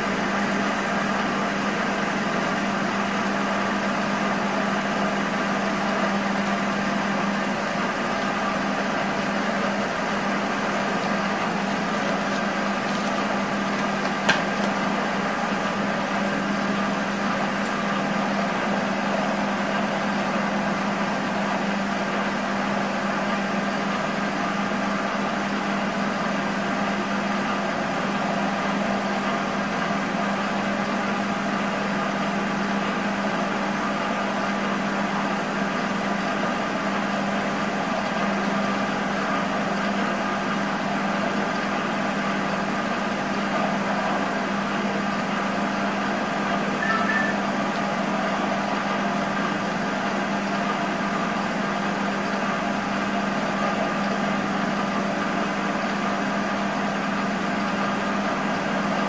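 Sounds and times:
lathe motor and gear hum: 0.0s - 59.0s
short high chirp: 46.8s - 47.4s.

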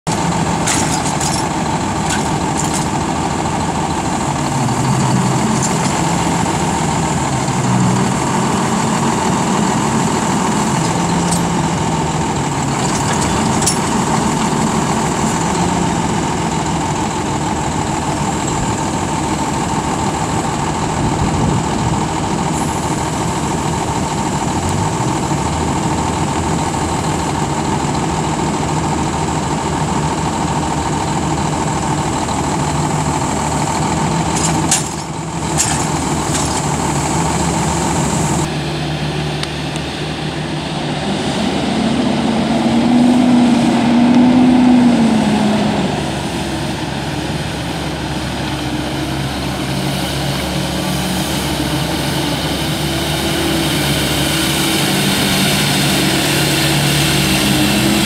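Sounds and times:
truck engine running: 0.0s - 58.0s
hydraulic arm lifting: 0.1s - 17.5s, 33.4s - 38.5s.

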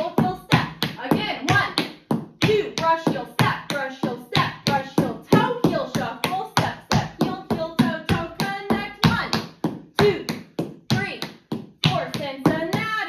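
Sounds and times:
person's voice: 0.0s - 1.8s
tap shoes on hard floor: 0.0s - 13.0s.

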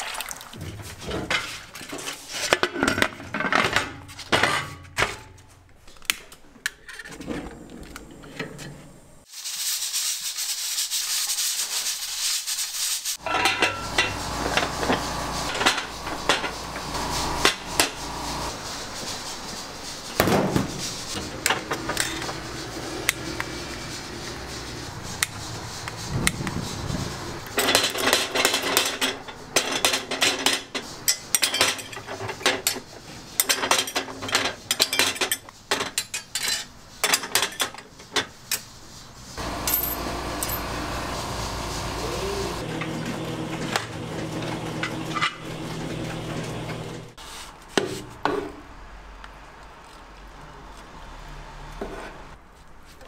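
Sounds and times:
steady low hum: 13.6s - 19.8s.

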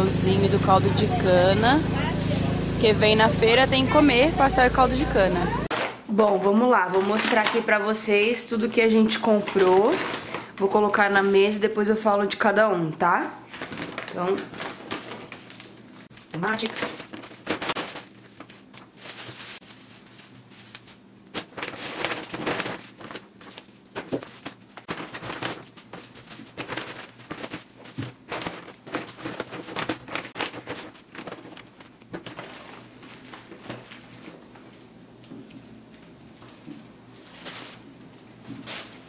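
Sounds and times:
plastic bags crinkling: 6.8s - 8.1s, 8.8s - 12.0s, 13.4s - 34.7s, 37.1s - 39.0s.

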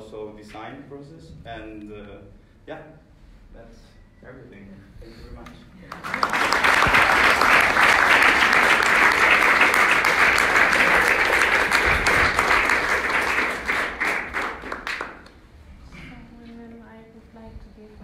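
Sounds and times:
audience applauding: 5.9s - 15.4s
close clapping: 5.9s - 15.4s.

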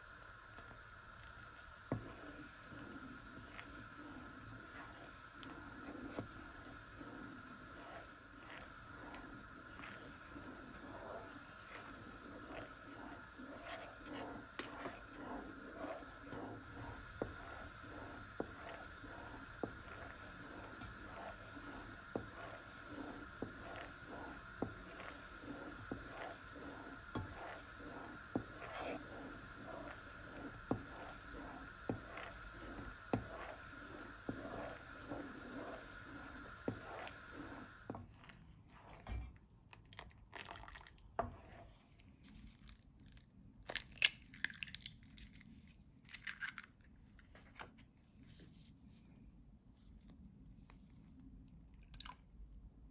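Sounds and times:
caramel bubbling hiss: 0.0s - 39.2s, 39.8s - 41.8s
wooden spoon scraping a pan: 1.2s - 39.4s, 41.2s - 42.6s.

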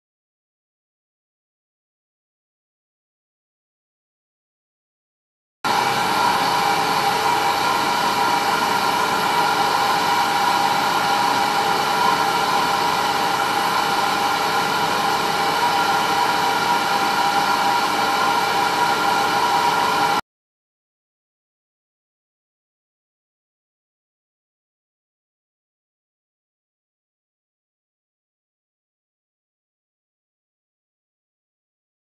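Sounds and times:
milling spindle whining: 5.7s - 20.2s.

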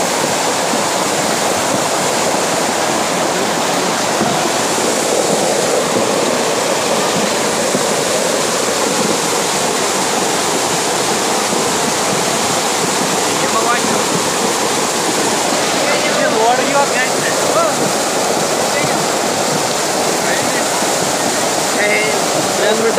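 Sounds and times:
torrent rushing over rocks: 0.0s - 22.9s.

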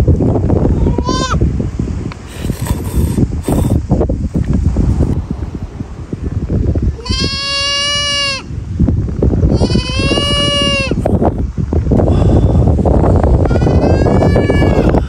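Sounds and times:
goat bleating: 0.8s - 1.4s, 7.0s - 8.5s, 9.5s - 11.0s, 13.4s - 15.0s.

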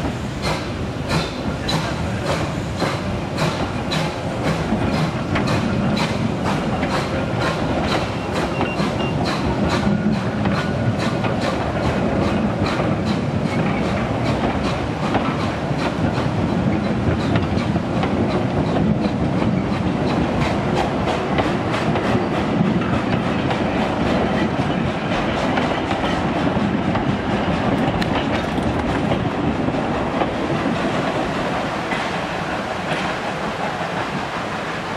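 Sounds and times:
train wheels clicking on rail joints: 0.0s - 34.9s.

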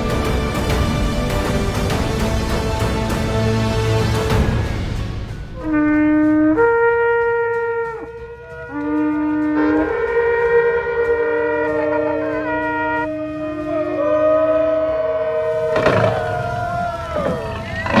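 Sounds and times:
shofars blowing long blasts: 5.6s - 18.0s.

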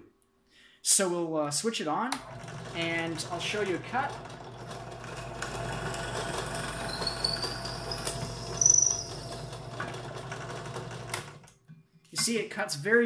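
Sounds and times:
drill press motor hum: 2.1s - 11.5s
drill bit squealing in wood: 5.6s - 9.8s.

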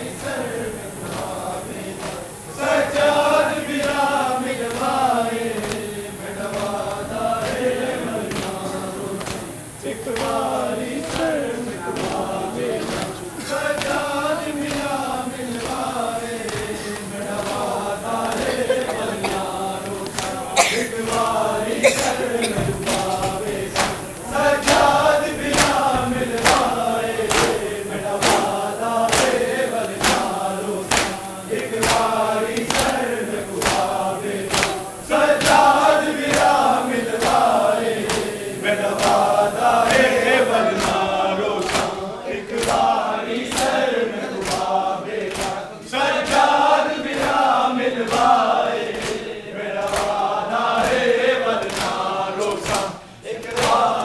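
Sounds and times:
crowd of men chanting: 0.0s - 54.0s.

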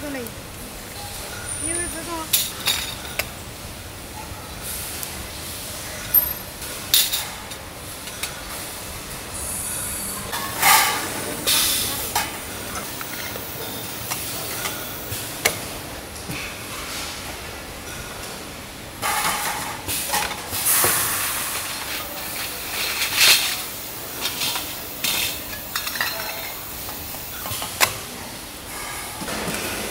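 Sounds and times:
factory machinery noise: 0.0s - 29.9s
metal parts clattering: 1.7s - 3.3s, 21.6s - 27.6s.

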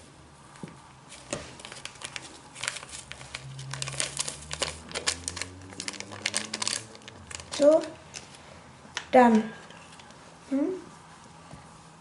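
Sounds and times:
packet crinkling: 1.5s - 8.4s.

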